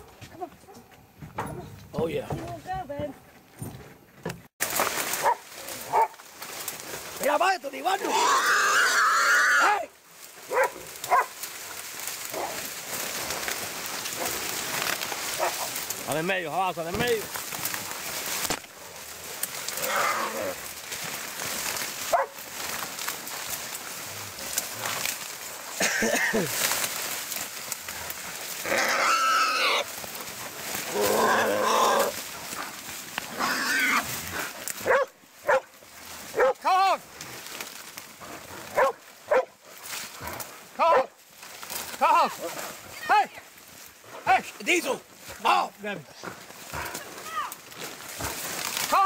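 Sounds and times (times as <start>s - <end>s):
brush rustling and crackling: 0.0s - 3.5s, 4.2s - 49.0s
wild hog squealing: 7.9s - 9.9s, 19.6s - 20.8s, 28.5s - 30.1s, 30.8s - 32.3s, 33.3s - 34.6s
hog squealing: 8.0s - 9.8s, 28.6s - 29.9s, 33.4s - 34.1s.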